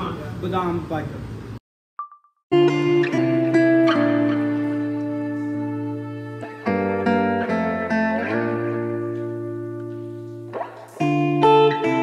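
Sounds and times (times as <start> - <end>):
held guitar chord: 2.5 - 12.0.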